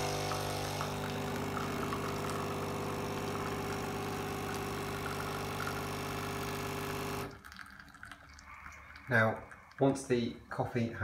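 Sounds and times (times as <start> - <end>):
coffee machine pump buzzing: 0.0 - 8.0.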